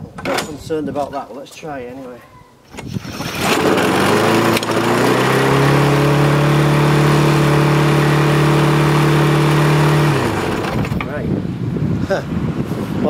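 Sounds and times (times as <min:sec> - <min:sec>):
lawn mower engine running fast: 0:02.8 - 0:11.2.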